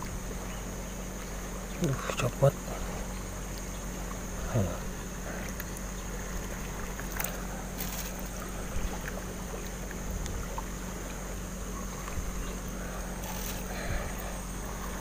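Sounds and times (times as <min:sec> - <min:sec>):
river water lapping on rocks: 0:01.1 - 0:15.0.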